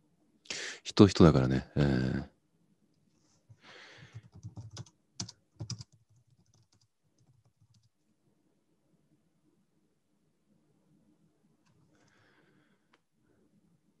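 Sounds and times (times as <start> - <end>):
computer keyboard typing: 4.0 - 7.9.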